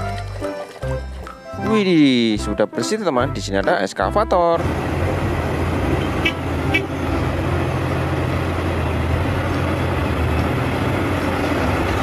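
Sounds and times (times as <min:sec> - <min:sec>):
excavator diesel engine running: 0:04.6 - 0:12.0.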